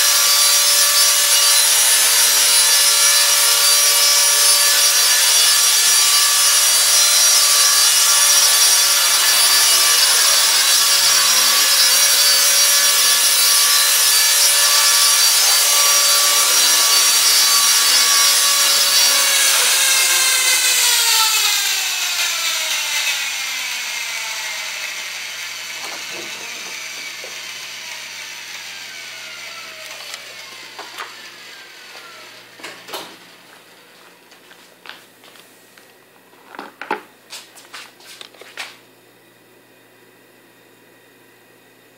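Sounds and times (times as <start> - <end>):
rc helicopter motor whine: 3.4 - 32.6.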